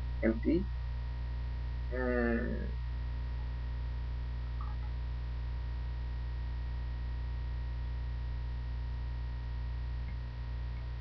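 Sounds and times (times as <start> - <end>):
low electrical hum: 0.0 - 11.0
faint high steady tone: 4.4 - 5.2.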